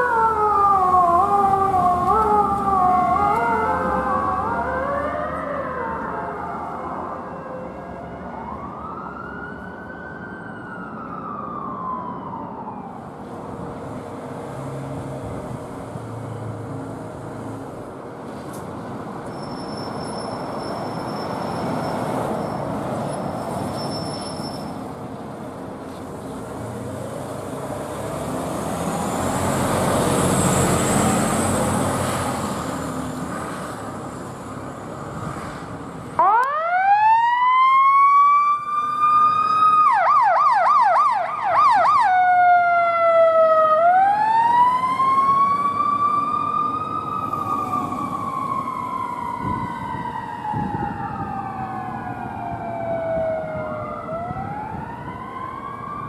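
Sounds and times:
emergency siren wailing: 0.0s - 13.6s, 36.1s - 56.0s
heavy road traffic: 0.0s - 56.0s.

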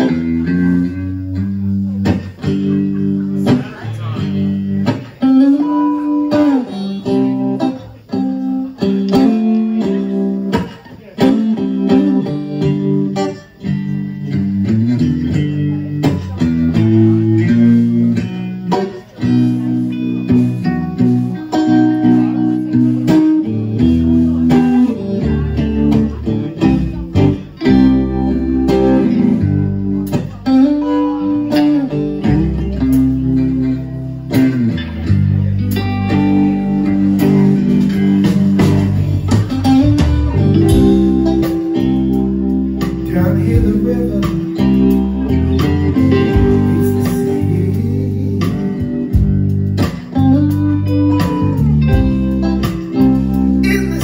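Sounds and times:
bass guitar: 0.0s - 54.0s
drums: 0.0s - 54.0s
electric guitars: 0.0s - 54.0s.

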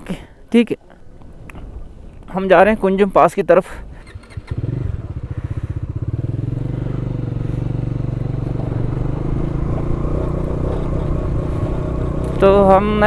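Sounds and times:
motorcycle engine pulsing exhaust: 4.0s - 13.0s.

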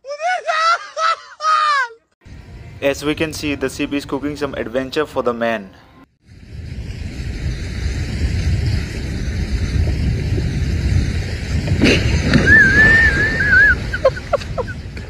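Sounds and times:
wind on microphone: 6.2s - 15.0s
crash and splash into water: 9.7s - 14.6s.

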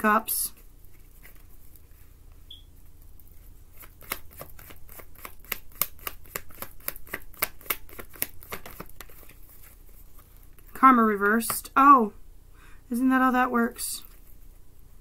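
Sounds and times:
cards being shuffled: 0.5s - 2.0s, 3.2s - 11.7s.

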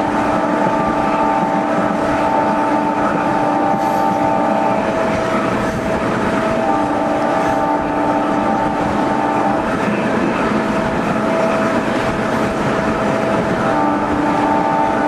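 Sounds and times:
train rolling noise: 0.0s - 15.0s.

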